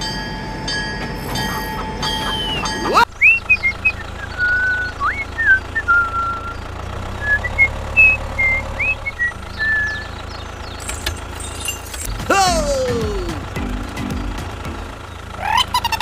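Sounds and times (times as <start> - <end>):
tractor engine rumbling: 0.0 - 16.0
bird chirps and whistles: 1.5 - 6.6, 7.2 - 10.1.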